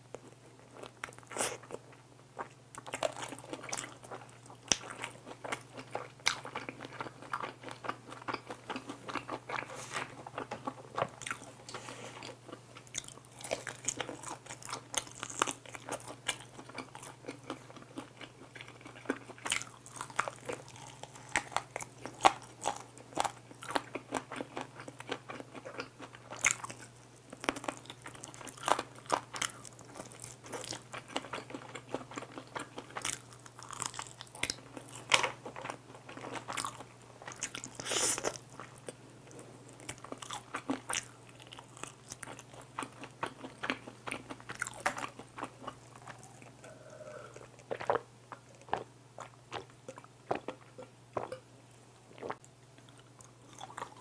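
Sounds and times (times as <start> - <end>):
crunching fried chicken: 0.7 - 51.3.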